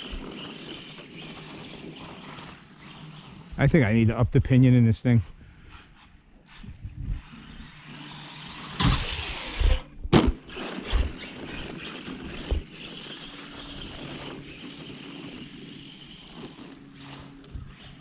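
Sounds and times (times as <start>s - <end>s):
electric motor whining: 0.0s - 4.0s, 5.3s - 18.0s
loud thumps: 8.8s - 11.1s.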